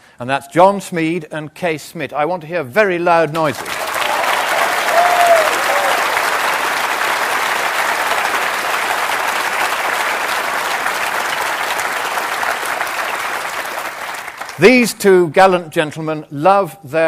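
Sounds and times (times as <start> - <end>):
audience applauding: 3.4 - 14.8.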